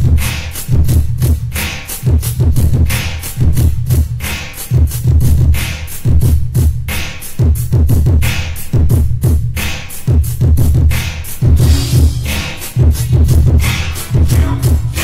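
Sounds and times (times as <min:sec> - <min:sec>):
hi-hat ticks: 0:00.0 - 0:15.0
hip hop drum machine beat: 0:00.0 - 0:15.0
heavy bass kicks: 0:10.2 - 0:15.0.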